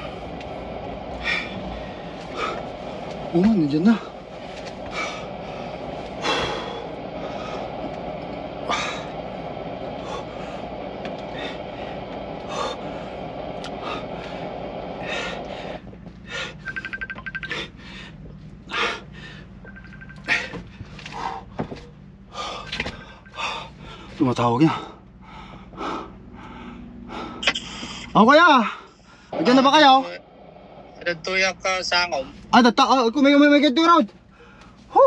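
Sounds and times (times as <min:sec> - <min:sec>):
man breathing hard: 0:00.0 - 0:03.2, 0:04.0 - 0:16.8, 0:17.5 - 0:19.6, 0:20.2 - 0:29.4, 0:34.3 - 0:34.9
steady low rush: 0:00.0 - 0:35.0
phone ringing: 0:16.6 - 0:17.7, 0:19.6 - 0:20.6.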